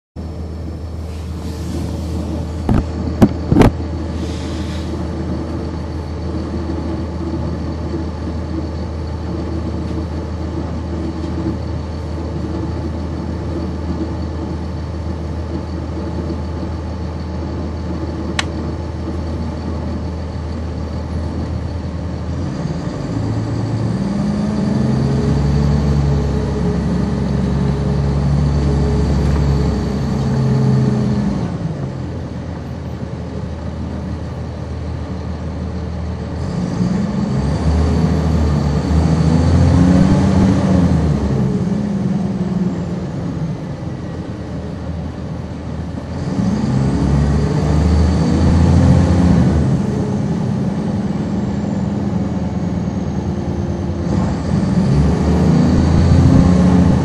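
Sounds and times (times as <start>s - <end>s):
bus diesel engine: 0.2s - 57.0s
high whine: 2.2s - 4.6s, 55.6s - 57.0s.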